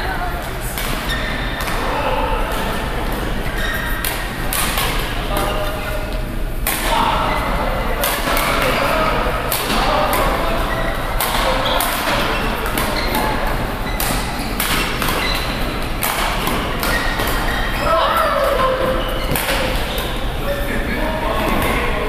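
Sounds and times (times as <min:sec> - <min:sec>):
faint voices: 0:00.0 - 0:22.0
rackets striking shuttlecock: 0:03.6 - 0:05.5, 0:06.6 - 0:07.0, 0:08.0 - 0:17.8, 0:18.4 - 0:20.2.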